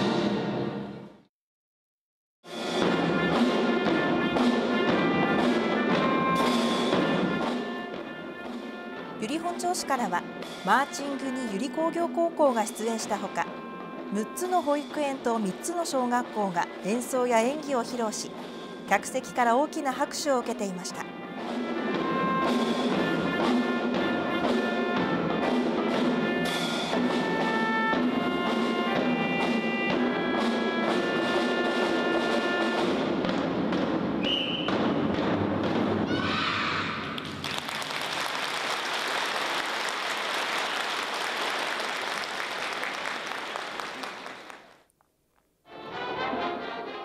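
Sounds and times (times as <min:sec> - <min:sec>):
snare drums: 0:02.5 - 0:11.7, 0:20.4 - 0:37.6
melodicas playing march tune: 0:03.0 - 0:33.1
audience applause: 0:37.1 - 0:44.8.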